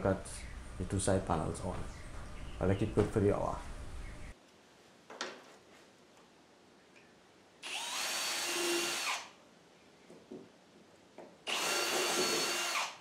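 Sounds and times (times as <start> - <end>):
cordless drill drilling plywood: 7.6 - 9.3, 11.5 - 13.0.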